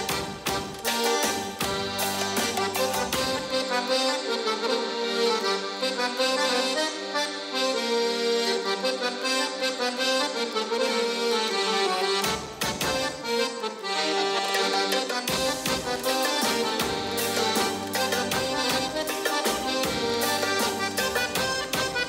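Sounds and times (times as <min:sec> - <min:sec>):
percussion strikes: 0:00.0 - 0:04.1, 0:12.2 - 0:13.4, 0:14.4 - 0:22.0
accordion ornamented melody: 0:00.0 - 0:22.0.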